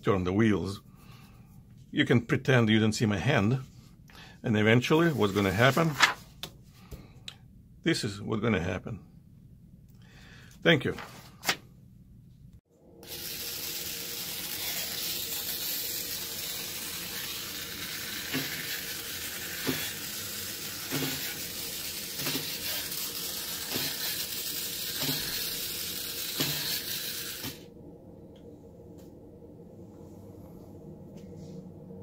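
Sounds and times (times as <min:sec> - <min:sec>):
toy car motor whirring: 0:13.0 - 0:27.6.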